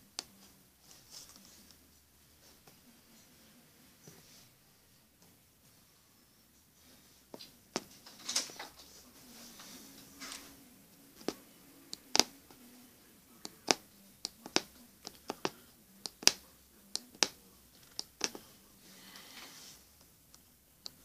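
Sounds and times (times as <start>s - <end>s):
punch needle clicking through fabric: 16.1s - 16.4s.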